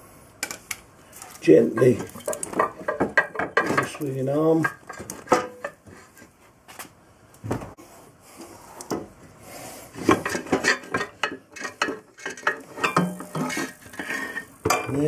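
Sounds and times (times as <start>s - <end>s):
metal clinks knocks and scrapes: 10.0s - 15.0s.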